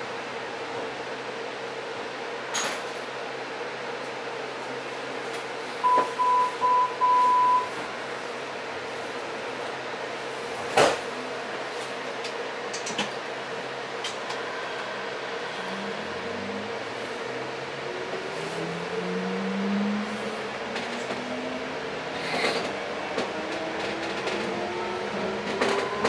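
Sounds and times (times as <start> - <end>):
train equipment hum: 3.1 - 26.0
high-pitched door warning beeps: 5.8 - 8.0.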